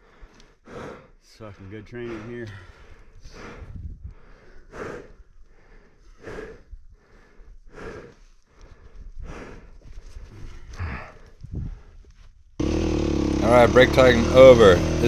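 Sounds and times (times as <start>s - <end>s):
person breathing hard: 0.0s - 1.2s, 2.0s - 12.1s.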